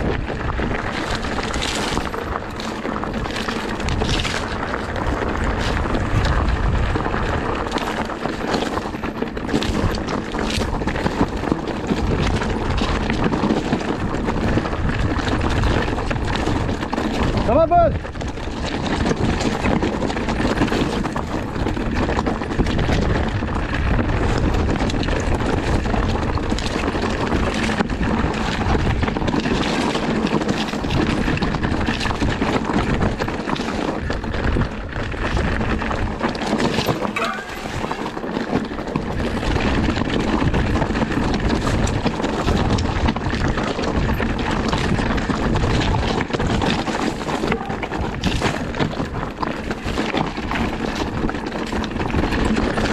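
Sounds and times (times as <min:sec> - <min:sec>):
bike knocks and rattles: 0:00.0 - 0:52.9
tyres rumbling over stones: 0:00.0 - 0:52.9
wind buffeting microphone: 0:00.0 - 0:52.9.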